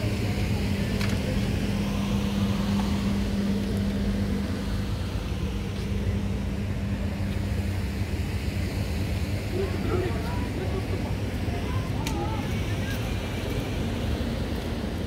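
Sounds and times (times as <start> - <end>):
constant rumble: 0.0 - 15.0
low mechanical hum: 0.0 - 15.0.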